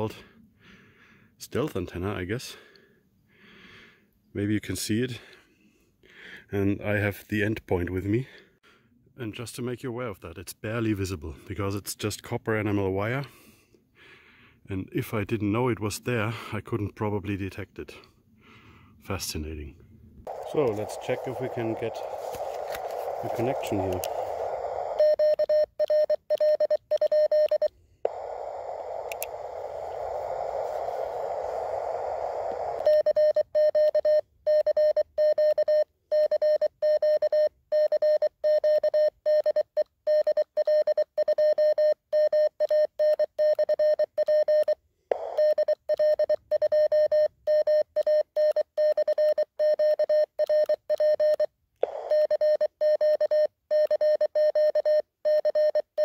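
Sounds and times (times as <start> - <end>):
morse code beeps: 20.3 - 31.3, 32.3 - 56.0
hissing receiver noise: 20.3 - 34.0, 44.5 - 46.3.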